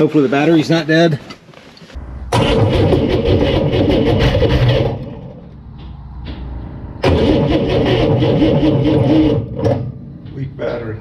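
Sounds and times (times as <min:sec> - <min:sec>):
engine starter cranking: 0:02.3 - 0:05.7, 0:07.0 - 0:10.0.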